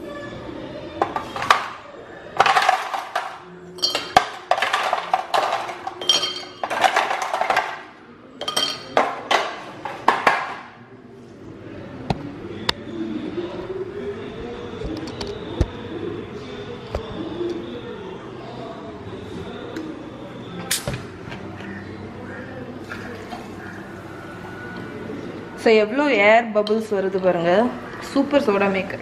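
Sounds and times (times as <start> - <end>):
ice cubes rattling in plastic box: 2.4 - 7.9
ice clinking in glass: 3.8 - 7.6, 8.4 - 9.1.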